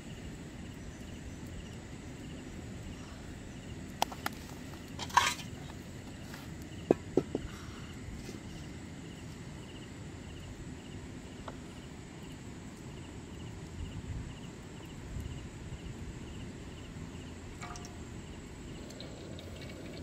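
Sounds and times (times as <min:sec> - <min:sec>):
insects chirping: 0:00.0 - 0:20.0
low outdoor rumble: 0:00.0 - 0:20.0.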